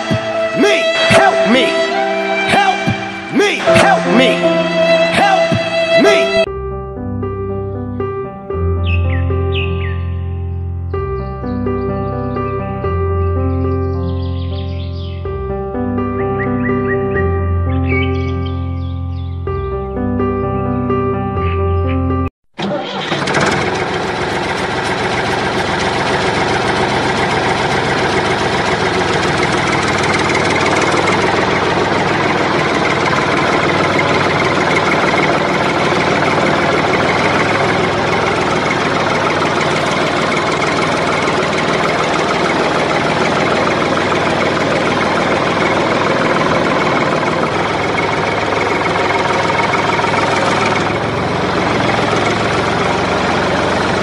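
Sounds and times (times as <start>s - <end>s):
tractor engine idling: 0.0s - 6.5s, 22.6s - 54.0s.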